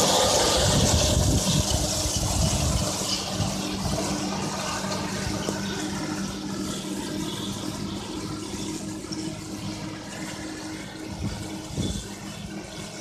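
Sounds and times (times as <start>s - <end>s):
manure spreader rushing hiss: 0.0s - 13.0s
tractor engine running: 0.0s - 13.0s.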